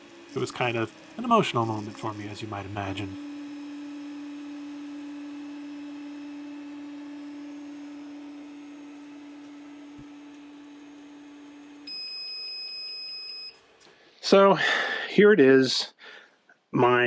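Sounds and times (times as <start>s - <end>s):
printer humming: 0.0s - 12.4s.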